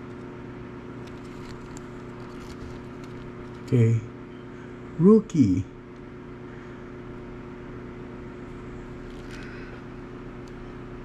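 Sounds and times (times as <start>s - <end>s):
low background hum: 0.0s - 11.0s
trading cards rustling: 1.0s - 3.8s.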